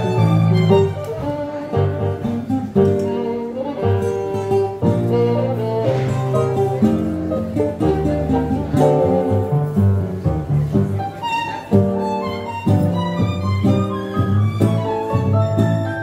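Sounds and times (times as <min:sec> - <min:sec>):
acoustic guitar: 0:00.0 - 0:16.0
keyboard held bass notes: 0:00.0 - 0:16.0
violin melody: 0:00.0 - 0:16.0.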